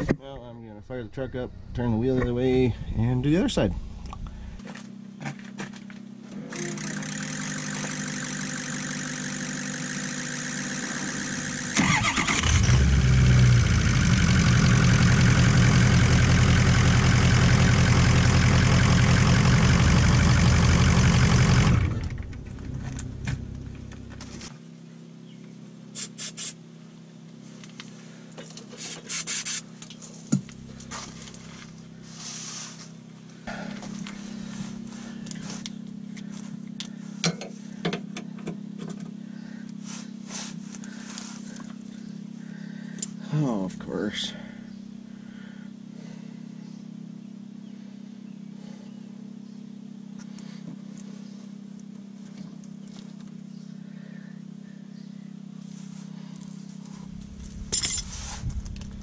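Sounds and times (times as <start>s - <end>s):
steady hum: 0.0s - 13.8s, 16.7s - 59.0s
pickup engine running: 0.8s - 24.7s, 29.8s - 43.2s, 55.7s - 59.0s.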